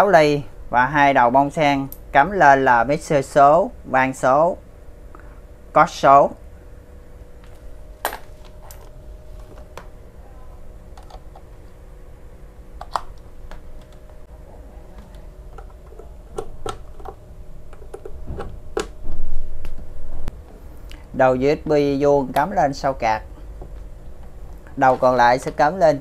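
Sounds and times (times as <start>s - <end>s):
faint steady hum: 0.0s - 26.0s
cable plugs clicking into jacks: 12.8s - 14.0s.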